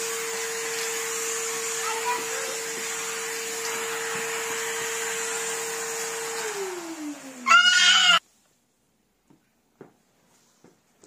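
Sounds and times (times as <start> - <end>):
vacuum cleaner motor running: 0.0 - 8.2
high-pitched cry: 7.4 - 8.2.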